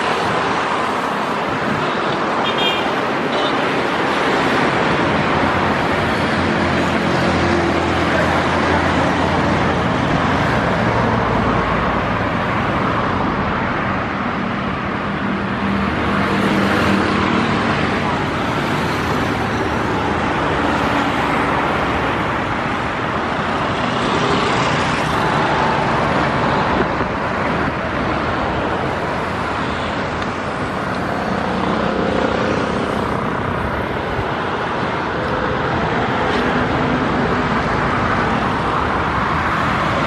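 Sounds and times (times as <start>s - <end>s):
motorbikes passing: 15.5s - 40.0s.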